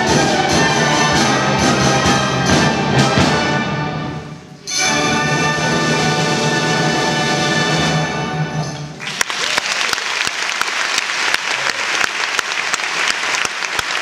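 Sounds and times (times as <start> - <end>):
audience applause: 9.0 - 14.0.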